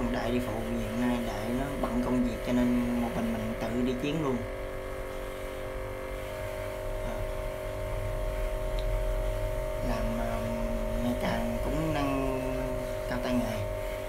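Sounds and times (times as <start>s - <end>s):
man's voice: 0.0s - 4.4s, 9.8s - 13.7s
electric motor hum: 0.0s - 14.0s.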